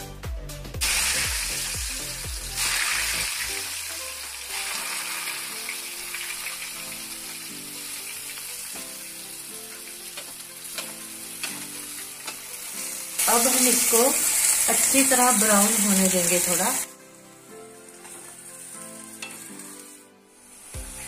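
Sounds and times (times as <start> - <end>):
vegetables sizzling in hot oil: 0.8 - 21.0
stirring in frying pan: 6.4 - 15.2, 17.4 - 21.0.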